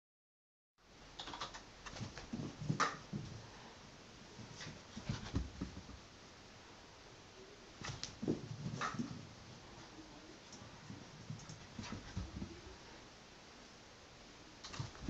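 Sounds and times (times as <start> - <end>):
dog scampering on carpet: 1.8 - 3.4, 4.4 - 6.0, 10.8 - 12.8.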